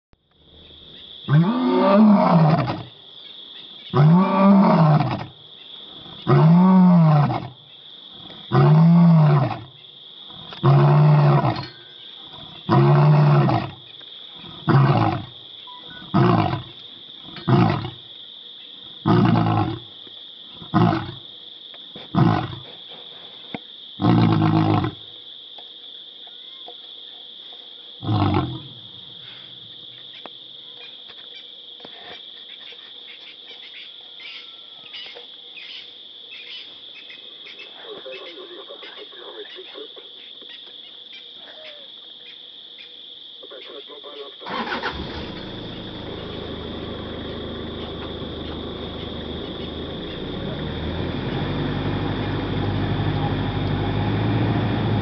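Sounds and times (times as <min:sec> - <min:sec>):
lion roaring: 0:01.3 - 0:02.9, 0:04.0 - 0:05.4, 0:06.1 - 0:07.6, 0:08.4 - 0:09.7, 0:10.4 - 0:11.6, 0:12.3 - 0:15.4, 0:16.0 - 0:18.0, 0:19.0 - 0:19.9, 0:20.6 - 0:21.2, 0:22.1 - 0:22.7, 0:24.0 - 0:25.0, 0:28.0 - 0:29.0
lion grunts: 0:14.4 - 0:15.4, 0:16.0 - 0:18.0, 0:19.0 - 0:19.9, 0:20.6 - 0:21.2, 0:22.1 - 0:22.7, 0:24.0 - 0:25.0, 0:28.0 - 0:28.9.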